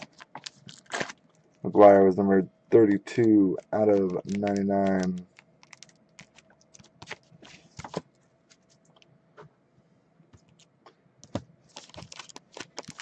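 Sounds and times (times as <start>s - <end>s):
typing on a computer keyboard: 3.2s - 7.3s.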